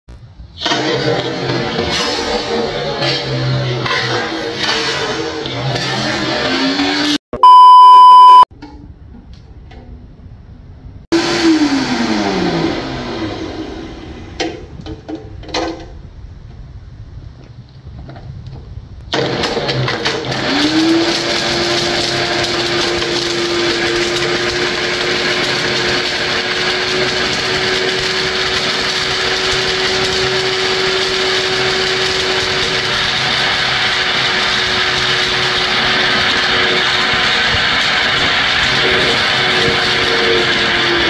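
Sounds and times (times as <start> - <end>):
blender motor running: 5.8 - 7.2, 11.2 - 14.2, 19.2 - 41.0
blender chopping hard plastic: 19.2 - 41.0.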